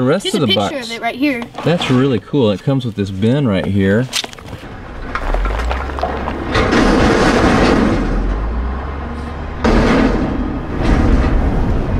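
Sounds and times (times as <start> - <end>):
heavy truck engine rumbling: 4.6 - 11.9.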